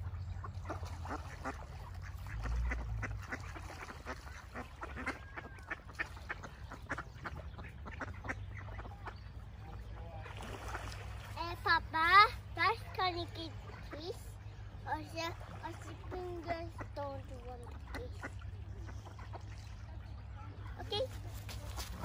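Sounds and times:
low steady rumble: 0:00.0 - 0:10.2
ducks quacking: 0:00.0 - 0:22.0.

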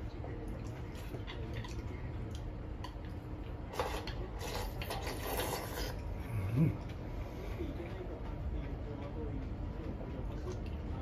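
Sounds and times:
person slurping soup: 0:03.7 - 0:06.0.

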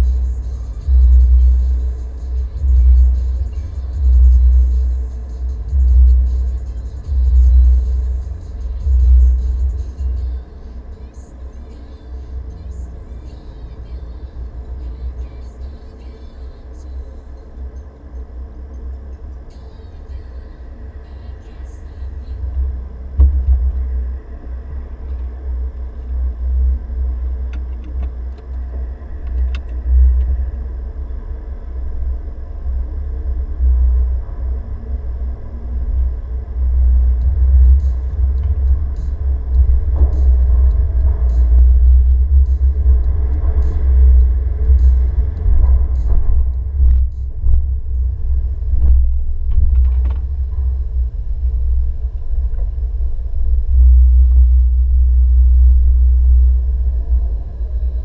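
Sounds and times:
car engine and tyres rumbling: 0:00.0 - 0:58.0.

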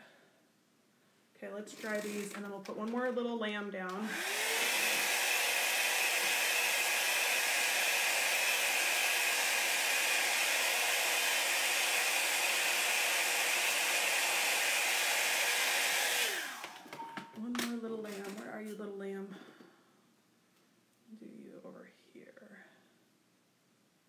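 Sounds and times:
blow dryer whining: 0:03.9 - 0:17.0.

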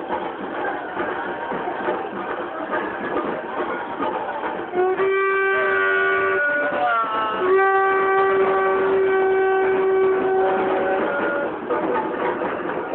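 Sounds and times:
held horn-like tones: 0:04.7 - 0:12.4.

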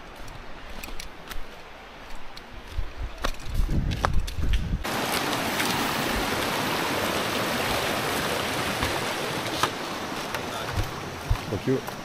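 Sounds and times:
water rushing: 0:04.8 - 0:12.0.

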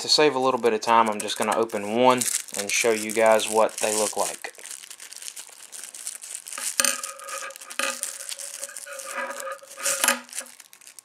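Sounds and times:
plastic packaging crinkling and tearing: 0:00.4 - 0:11.0.

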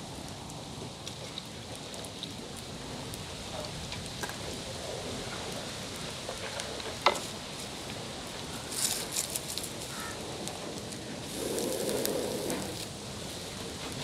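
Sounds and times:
fish sizzling in hot oil: 0:11.2 - 0:13.3.

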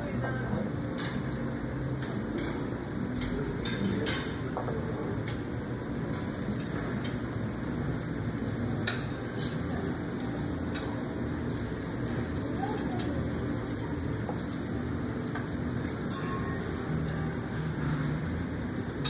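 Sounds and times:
steady hiss and murmur: 0:00.0 - 0:19.0
dishes and cutlery clinking: 0:00.9 - 0:07.2, 0:08.7 - 0:11.1, 0:15.3 - 0:18.2.

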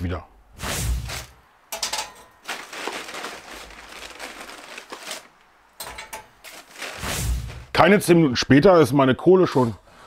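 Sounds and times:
charcoal clinking: 0:01.1 - 0:07.7
charcoal pouring into metal starter: 0:01.8 - 0:07.8.

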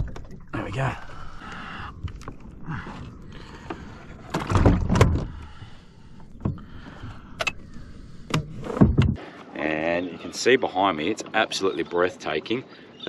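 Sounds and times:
kayak fittings knocking and creaking: 0:00.0 - 0:09.2.

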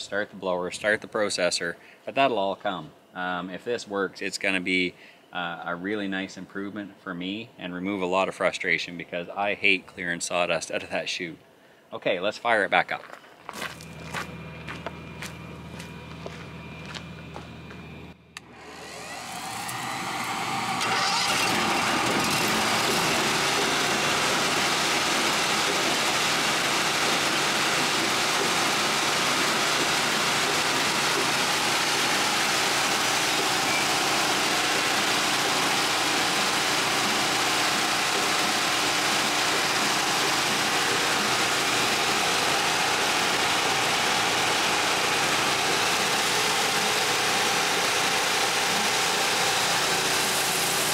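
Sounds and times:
gasoline engine starting and running: 0:13.5 - 0:50.9.

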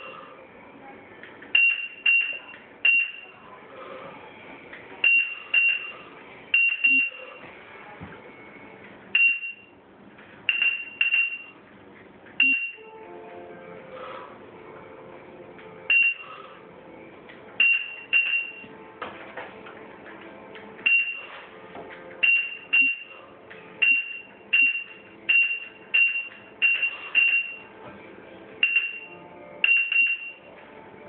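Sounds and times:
short high beeps: 0:12.4 - 0:12.8.

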